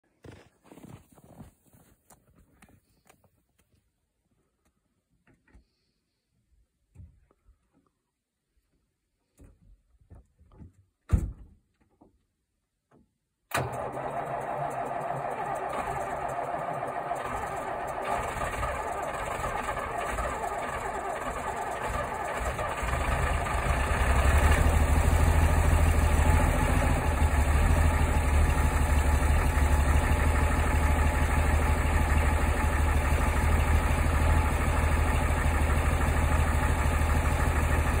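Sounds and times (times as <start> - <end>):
diesel truck engine running: 13.6 - 38.0.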